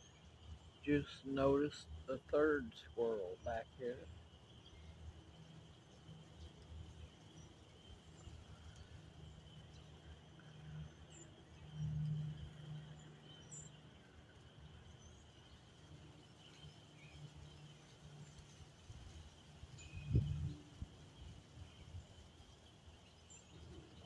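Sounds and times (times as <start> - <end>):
distant frog chorus: 0.0 - 24.0
faint high bird chirps: 19.7 - 22.2.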